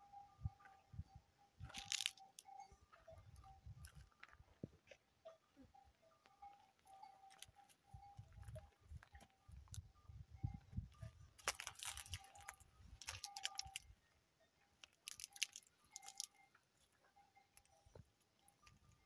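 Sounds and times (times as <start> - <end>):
footsteps on straw and gravel: 1.6 - 2.3, 11.4 - 13.8.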